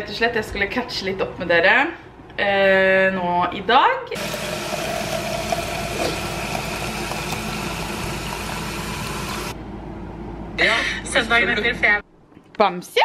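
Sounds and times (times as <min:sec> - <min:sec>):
tap water running into cup: 0:04.2 - 0:09.6.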